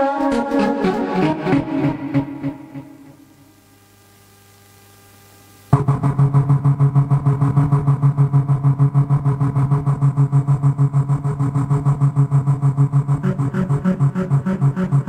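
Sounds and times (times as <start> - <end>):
faint hum: 0.8 - 15.0
pulsing low synth tone: 5.7 - 15.0.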